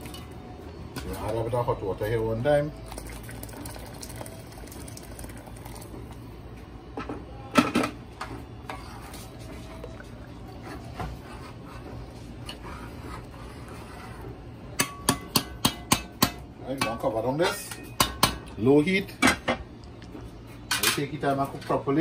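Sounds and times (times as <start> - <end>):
metal spoon stirring in a pot: 8.6 - 17.0.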